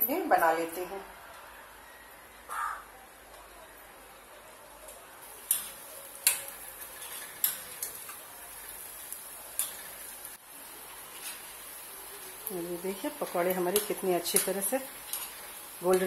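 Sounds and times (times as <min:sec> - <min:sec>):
food sizzling in hot oil: 0:05.2 - 0:16.0.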